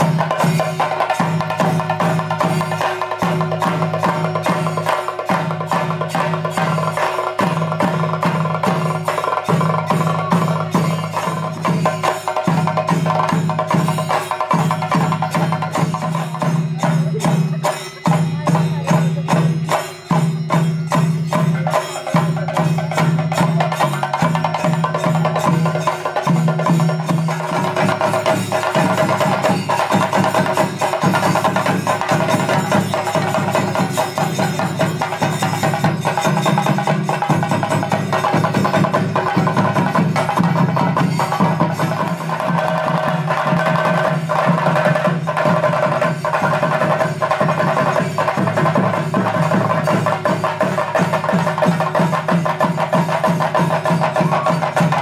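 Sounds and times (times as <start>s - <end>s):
ensemble of drums played with sticks: 0.0s - 55.0s.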